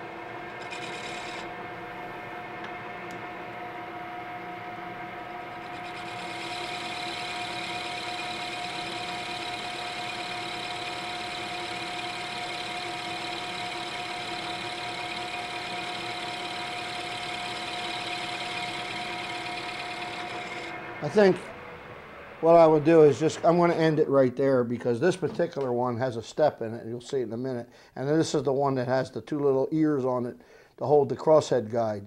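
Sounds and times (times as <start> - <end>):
lathe motor humming: 0.2 - 24.0.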